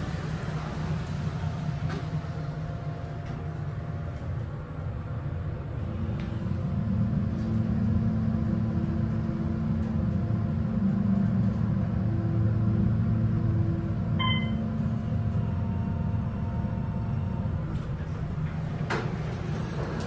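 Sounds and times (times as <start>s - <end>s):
elevator hum and rumble: 0.0s - 20.0s
electronic chime: 14.2s - 14.6s.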